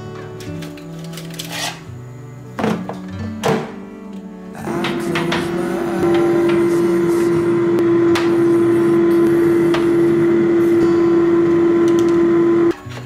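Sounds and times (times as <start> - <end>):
loud machine hum: 4.6 - 12.8.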